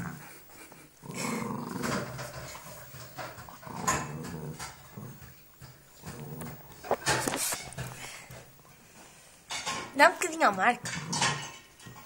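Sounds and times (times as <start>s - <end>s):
dog growling: 0.0s - 7.4s.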